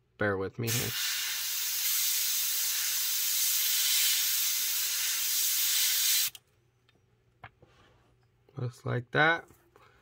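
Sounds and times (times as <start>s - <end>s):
airbrush spraying hiss: 0.7s - 6.4s.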